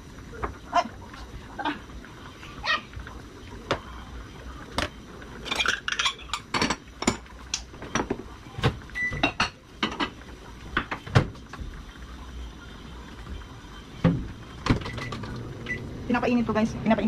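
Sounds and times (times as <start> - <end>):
dishes clinking on a counter: 5.5 - 10.2.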